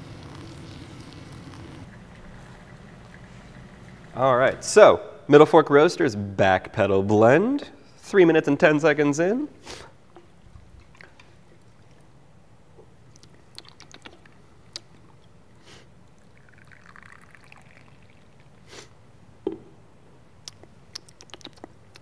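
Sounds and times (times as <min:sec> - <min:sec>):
coffee trickling into a cup: 0:00.0 - 0:04.2, 0:16.1 - 0:18.6.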